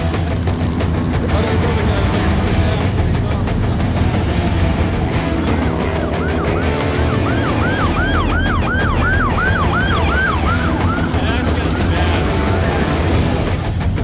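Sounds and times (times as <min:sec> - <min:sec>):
police siren yelping: 0:05.2 - 0:12.8.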